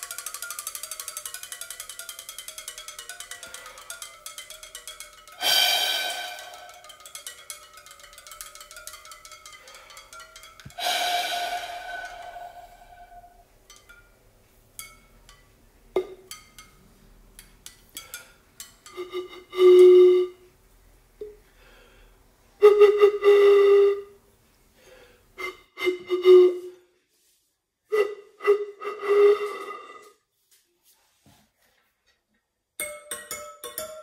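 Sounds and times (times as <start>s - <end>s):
metal tube whistly notes: 5.4s - 8.4s, 10.8s - 13.5s, 18.9s - 20.5s, 22.6s - 24.2s, 25.4s - 26.8s, 27.9s - 30.2s.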